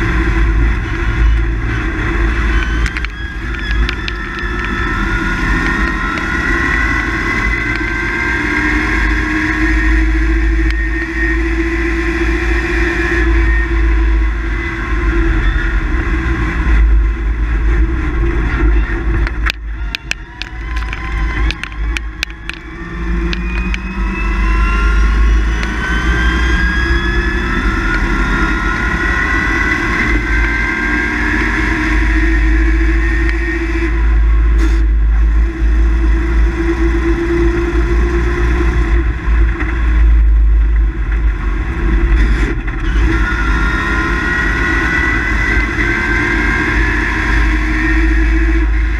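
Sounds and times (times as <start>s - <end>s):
sharp clicks: 2.5s - 4.8s, 19.2s - 24.0s.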